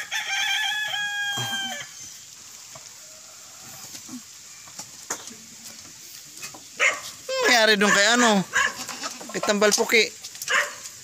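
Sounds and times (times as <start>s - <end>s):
rooster crowing: 0.0s - 2.1s.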